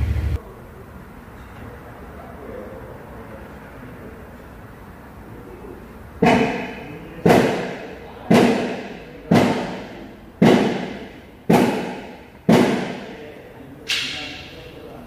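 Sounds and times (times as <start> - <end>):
heavy knocks: 6.2 - 13.2.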